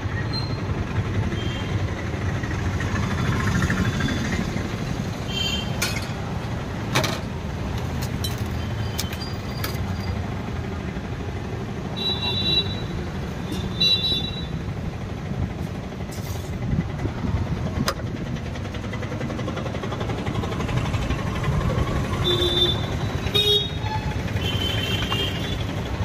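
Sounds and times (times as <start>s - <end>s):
road traffic rumble: 0.0s - 26.0s.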